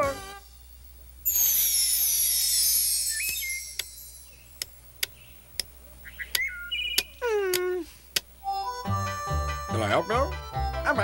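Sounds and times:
chirping glides: 1.3 - 7.4.

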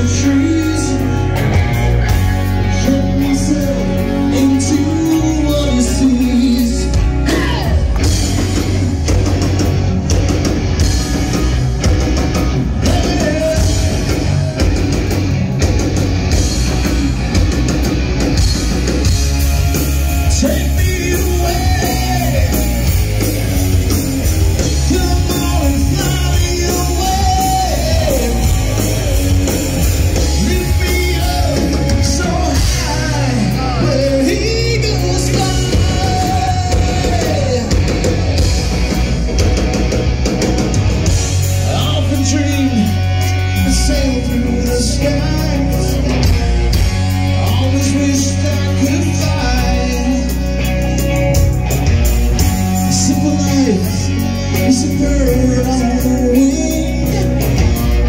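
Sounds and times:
person singing: 0.0 - 8.6, 12.7 - 14.9, 20.0 - 24.0, 24.6 - 38.4, 41.4 - 51.4, 52.6 - 58.0
rock band playing: 0.0 - 58.0.

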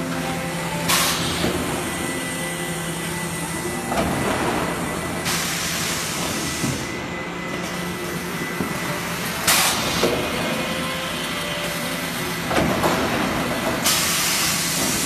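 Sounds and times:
air hissing: 0.0 - 7.1, 13.2 - 15.0
machine humming: 0.0 - 15.0.

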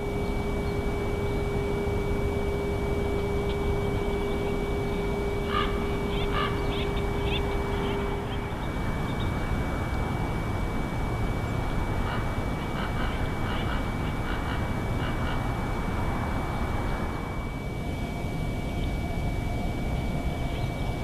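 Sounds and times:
low hum: 0.0 - 21.0
thin hum: 0.0 - 21.0
wind-like noise: 0.0 - 21.0
bird chirping: 3.1 - 10.0.

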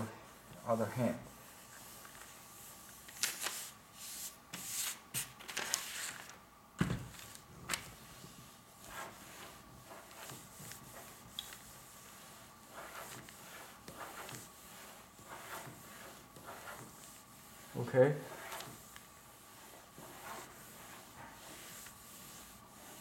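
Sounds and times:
iron sliding over paper: 7.2 - 23.0.

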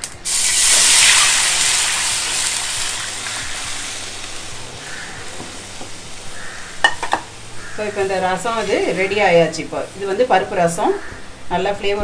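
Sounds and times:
liquid hissing and sizzling in hot oil: 0.0 - 10.9
liquid pouring splash: 0.2 - 4.3.

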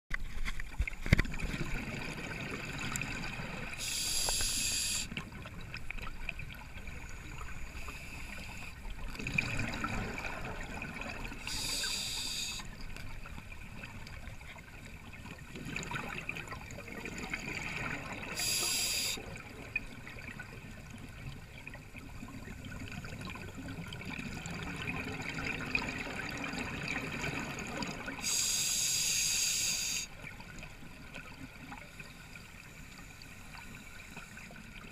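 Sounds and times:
exhaled bubbles bursting: 9.1 - 11.4.

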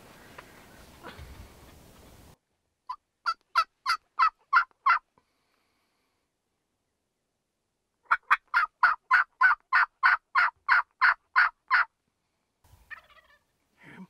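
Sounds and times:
turkey yelping: 2.9 - 5.0, 8.1 - 11.9, 12.9 - 13.5.

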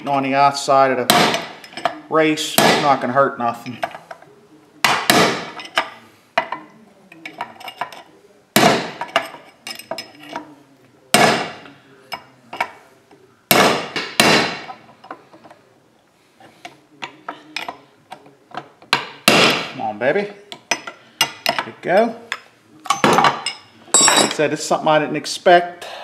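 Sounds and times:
hammer striking steel punch: 13.5 - 14.7.

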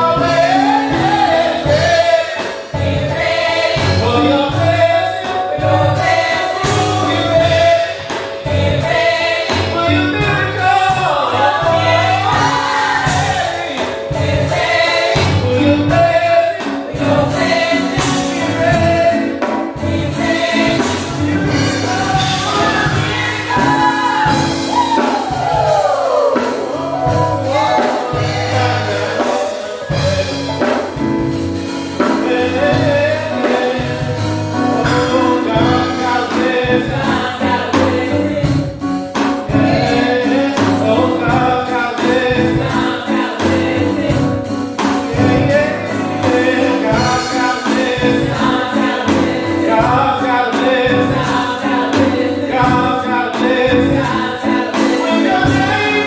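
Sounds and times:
voices joining in singing: 0.0 - 31.0, 39.4 - 56.0
women singing gospel: 0.0 - 56.0
steady beat: 17.0 - 50.2.

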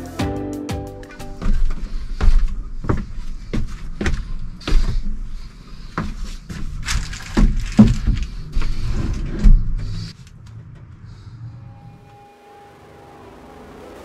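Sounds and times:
wooden bed frame knocking and scraping: 5.9 - 10.0.

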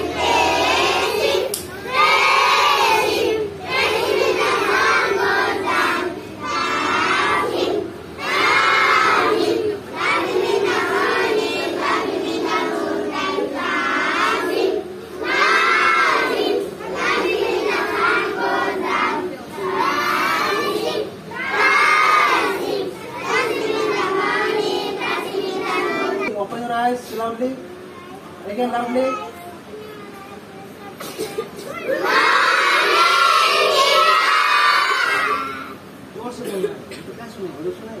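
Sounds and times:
children chanting in unison: 0.0 - 26.3, 31.7 - 35.8.

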